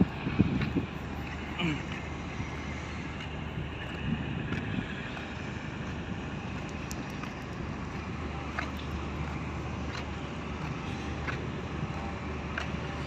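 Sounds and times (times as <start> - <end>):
distant traffic: 0.0 - 13.0
faint ticks: 3.2 - 11.4.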